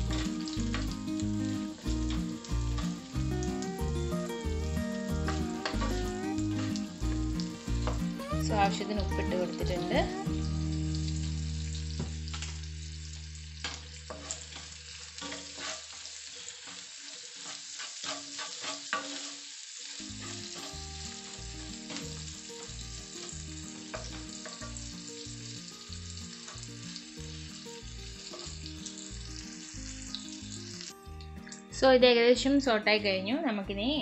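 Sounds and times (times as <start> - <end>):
onions sizzling in a pan: 0.0 - 32.8
wooden spatula scraping a pan: 5.2 - 7.2, 13.6 - 24.8.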